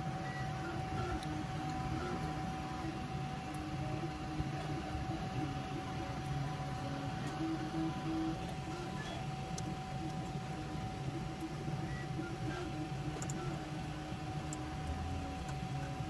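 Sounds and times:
fan hum: 0.0 - 16.0.

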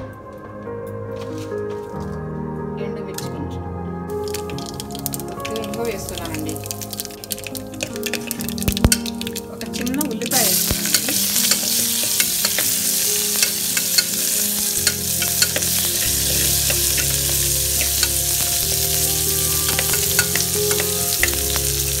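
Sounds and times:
onion sizzling in hot oil: 4.2 - 22.0
ladle clicking and scraping pan: 7.4 - 18.5.

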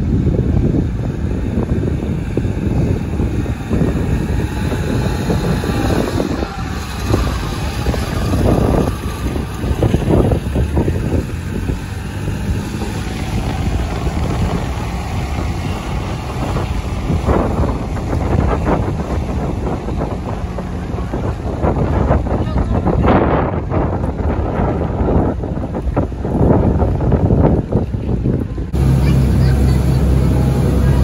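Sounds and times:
street noise: 0.0 - 31.0
wind rumbling on microphone: 0.0 - 31.0
vehicle engine driving past: 1.1 - 22.4, 28.7 - 31.0.

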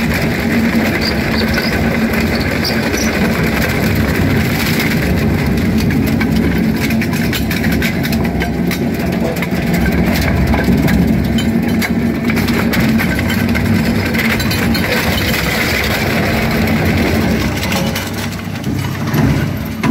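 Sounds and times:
scrap metal crunching and cracking: 0.0 - 19.9
shredder motor drone: 12.0 - 19.9.

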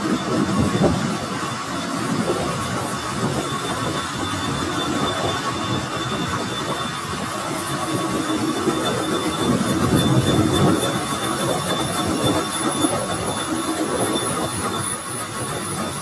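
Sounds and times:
high constant squeal: 0.0 - 16.0.

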